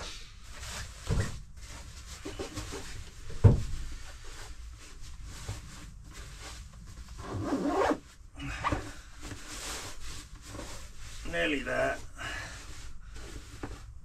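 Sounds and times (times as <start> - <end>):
thump: 3.4 - 3.8.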